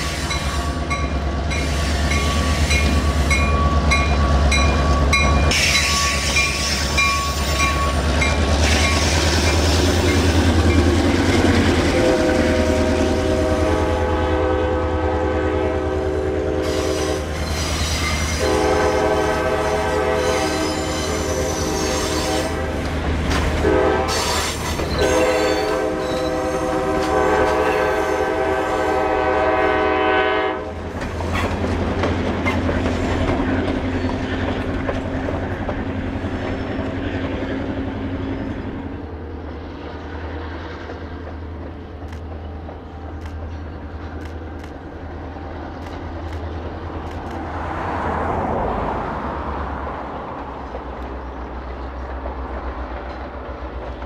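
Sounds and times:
locomotive air horn: 0:11.9 - 0:30.8
wheels clicking over rail joints: 0:30.8 - 0:37.5.

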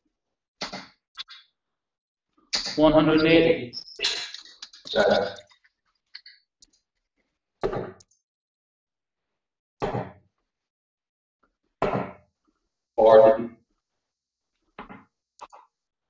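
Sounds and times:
darts thudding into dartboard: 0:07.6 - 0:08.0, 0:09.8 - 0:10.2, 0:11.8 - 0:12.2.

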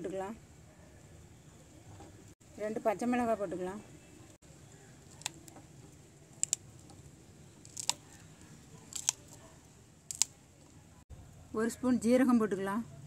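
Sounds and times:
chillies snapping: 0:04.9 - 0:05.6, 0:06.3 - 0:07.0, 0:07.6 - 0:10.4.

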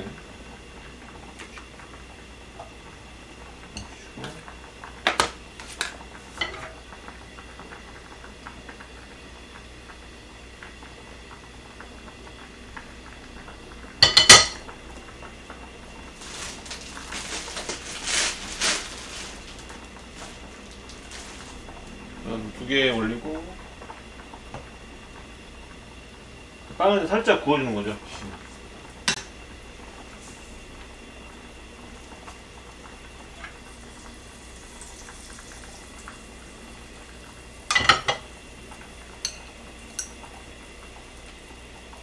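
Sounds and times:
light sizzling in pan: 0:00.0 - 0:42.0
pan clattering onto stove grate: 0:14.0 - 0:14.6, 0:37.7 - 0:38.2.

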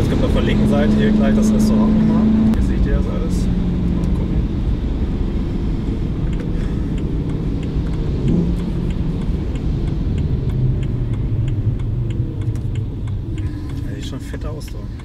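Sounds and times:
car engine at low revs: 0:00.0 - 0:15.0
light regular ticking: 0:02.4 - 0:15.0.

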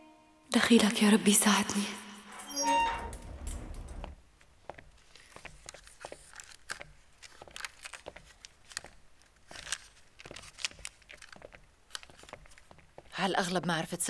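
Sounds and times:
newspaper crinkling: 0:05.0 - 0:12.9.

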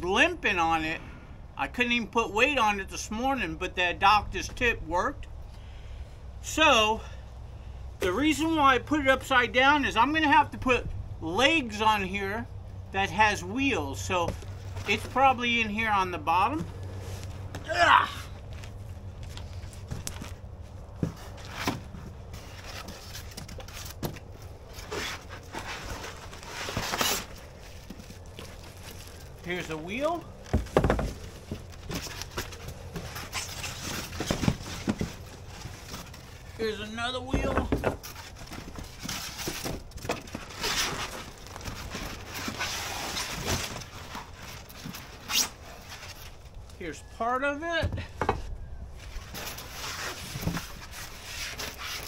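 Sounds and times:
low steady rumble: 0:00.0 - 0:49.8
styrofoam packing scrapes and rustles: 0:21.0 - 0:36.9, 0:37.7 - 0:46.5, 0:49.0 - 0:52.0
cardboard box rummaging: 0:30.4 - 0:36.6, 0:37.4 - 0:46.3.

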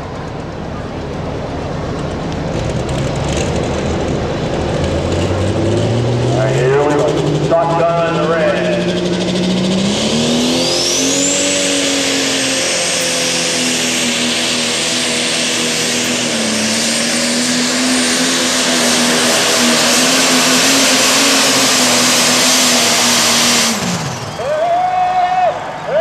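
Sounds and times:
diesel engine at full throttle: 0:00.0 - 0:26.0
turbocharger high whistle: 0:07.0 - 0:26.0.

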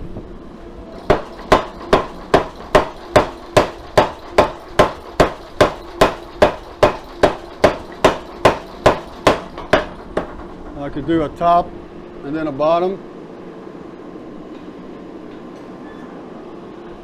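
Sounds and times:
power hammer striking hot steel: 0:00.9 - 0:10.9.

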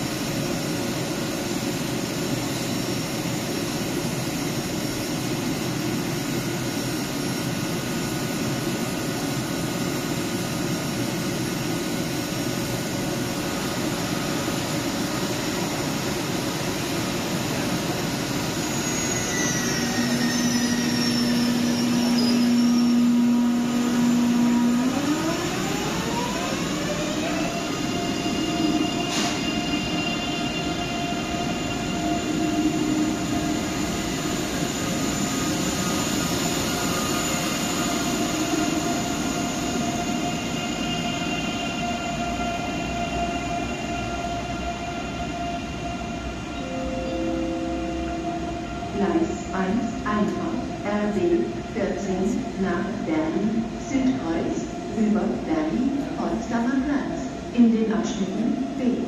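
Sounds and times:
rail noise: 0:00.0 - 0:59.0
electric train drive whine: 0:14.4 - 0:51.7.

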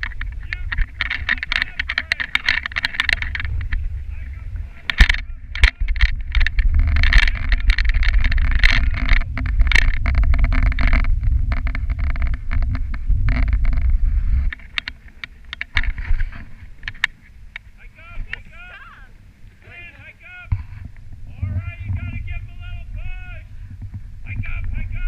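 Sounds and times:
sled rattling clicks: 0:00.0 - 0:18.6
sled runners rumbling on snow: 0:00.0 - 0:25.0.

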